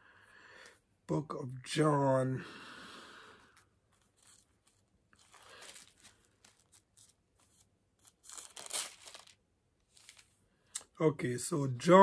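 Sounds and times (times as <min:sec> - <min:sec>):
pages rustling: 0:03.4 - 0:10.4.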